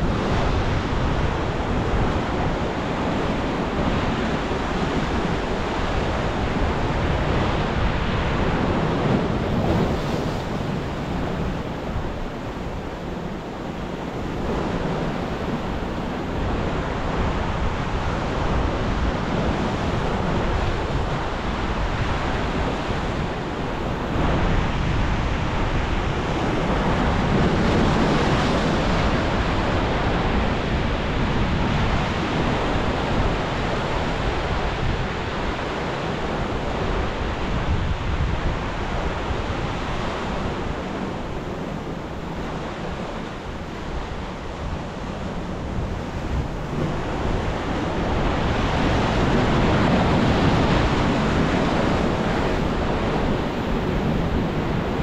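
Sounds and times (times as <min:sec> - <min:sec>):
ocean surf crashing on rocks: 0:00.0 - 0:55.0.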